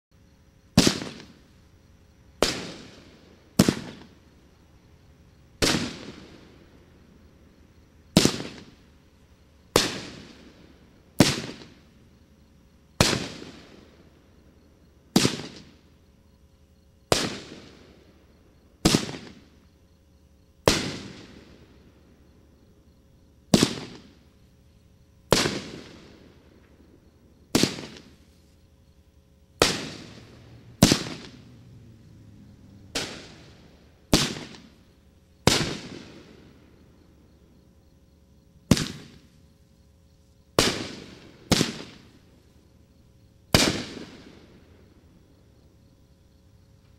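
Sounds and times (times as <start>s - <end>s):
firework cake firing bangs: 0.8s - 1.4s, 2.4s - 4.1s, 5.6s - 6.3s, 8.1s - 8.8s, 9.7s - 10.4s, 11.2s - 11.8s, 13.0s - 13.7s, 15.1s - 15.8s, 17.1s - 17.8s, 18.8s - 19.5s, 20.6s - 21.4s, 23.5s - 24.2s, 25.3s - 26.1s, 27.5s - 28.2s, 29.6s - 31.4s, 32.9s - 34.8s, 35.4s - 36.4s, 38.7s - 39.3s, 40.6s - 42.1s, 43.5s - 44.4s.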